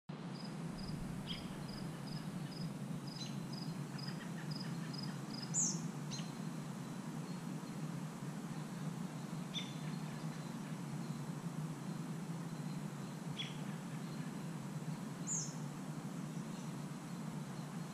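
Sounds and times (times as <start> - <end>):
steady low hum: 0.1 - 17.9
sharp falling bird calls: 0.9 - 3.4.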